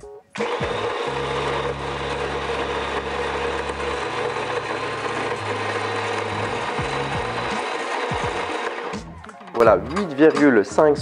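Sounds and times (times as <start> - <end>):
electric coffee grinder grinding: 0.4 - 9.6.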